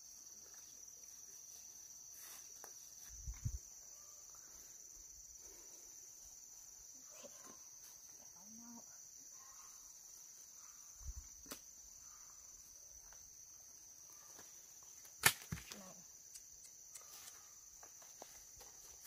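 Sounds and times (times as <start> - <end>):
insect chirring: 0.0 - 19.0
sharp crack: 15.2 - 15.6.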